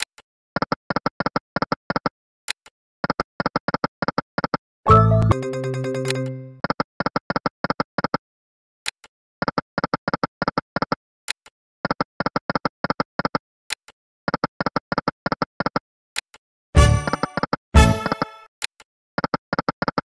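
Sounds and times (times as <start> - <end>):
win jingle: 4.9 - 6.6
short electronic ticks: 5.2 - 6.7.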